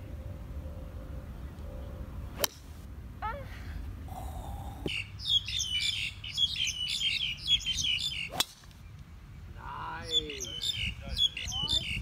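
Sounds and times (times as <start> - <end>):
golf club striking ball: 2.4 - 2.7, 8.3 - 8.8
small birds chirping: 4.1 - 12.0.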